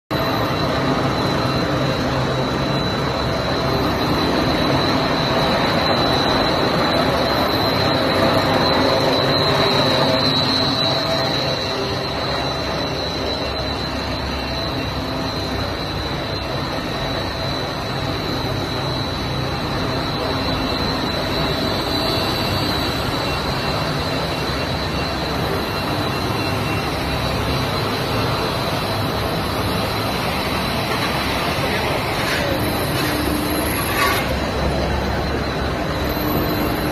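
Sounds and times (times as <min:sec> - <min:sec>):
machine running with high whine: 0:00.1 - 0:36.9.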